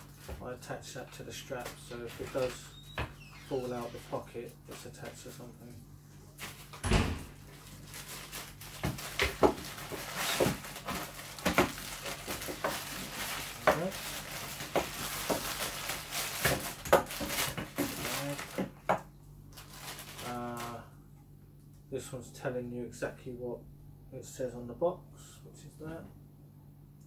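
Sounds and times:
plastic bag crinkling: 0:07.4 - 0:18.9, 0:19.5 - 0:20.8.

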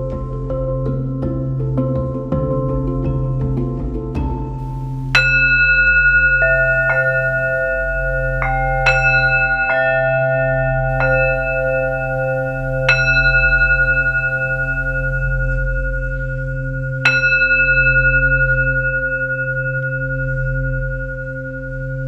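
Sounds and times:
low hum: 0:03.9 - 0:22.0
singing bowls struck with mallet: 0:04.5 - 0:22.0.

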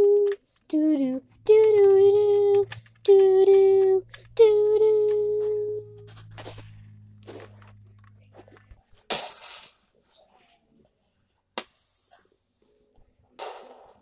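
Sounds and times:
child singing held note: 0:00.0 - 0:06.2
faint clicks: 0:00.0 - 0:06.7.

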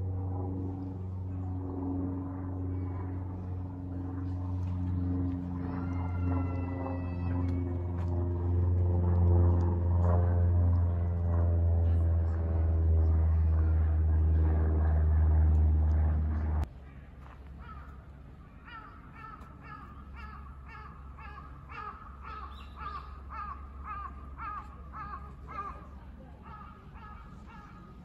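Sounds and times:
loud low drone: 0:00.0 - 0:16.7
crows cawing: 0:05.6 - 0:07.8, 0:17.6 - 0:28.0.

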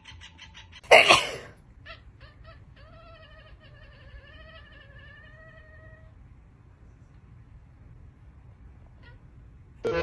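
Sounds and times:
cat meowing: 0:01.8 - 0:06.2.

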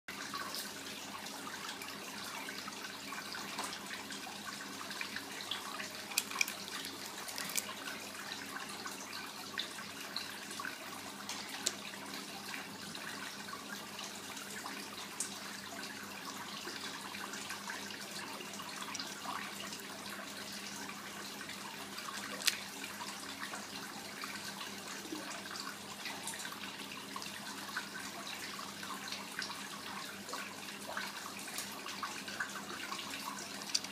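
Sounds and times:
running water trickling: 0:00.1 - 0:33.9
snail shell cracking: 0:06.1 - 0:07.7, 0:22.3 - 0:22.6.

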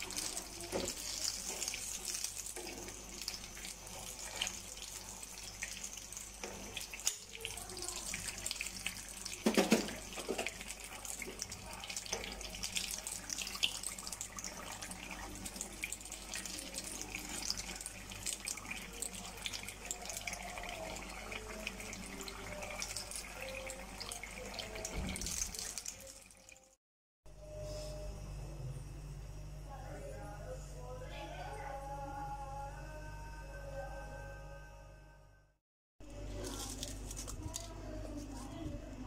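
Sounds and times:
food deep-frying in hot oil: 0:00.0 - 0:26.8.

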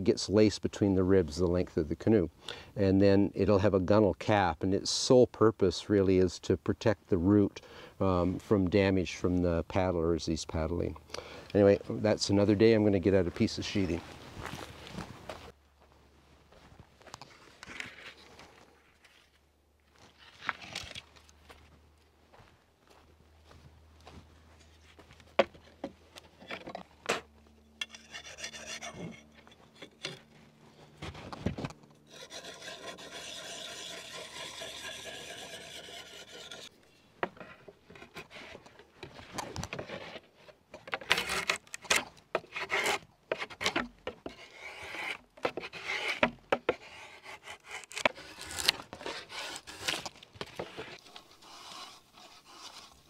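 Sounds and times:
drawknife scraping wood: 0:25.4 - 0:30.3, 0:31.0 - 0:53.0.

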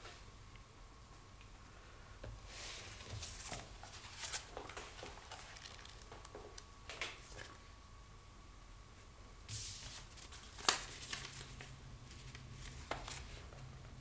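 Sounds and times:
book pages rustling and flicking: 0:02.6 - 0:07.6, 0:09.5 - 0:13.6.

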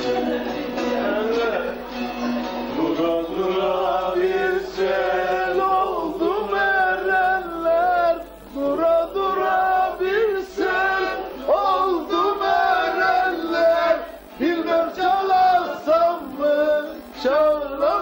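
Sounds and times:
long-necked lute playing: 0:00.0 - 0:15.0
group singing folk song: 0:00.0 - 0:18.0.

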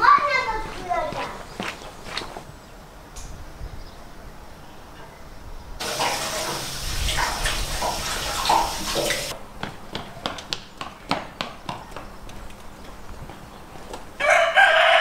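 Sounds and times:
water rushing from garden hose: 0:05.8 - 0:09.4.

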